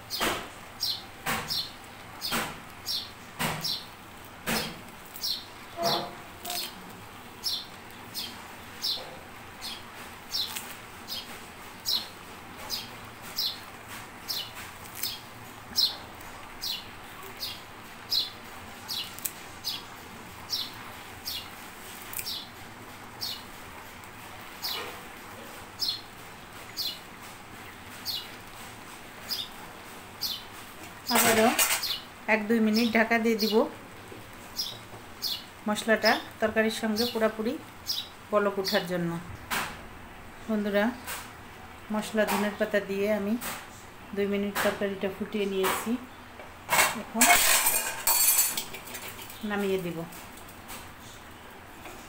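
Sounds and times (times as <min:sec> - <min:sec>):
small bird chirping: 0:00.1 - 0:03.9, 0:04.6 - 0:06.8, 0:07.4 - 0:12.1, 0:14.3 - 0:19.9, 0:20.5 - 0:21.5, 0:22.1 - 0:22.5, 0:30.2 - 0:30.5, 0:34.6 - 0:38.2.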